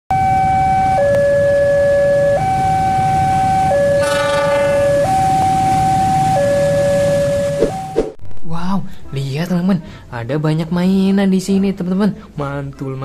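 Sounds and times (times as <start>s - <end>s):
two-tone siren: 0.1s - 8.2s
brief ringing burst: 4.0s - 5.2s.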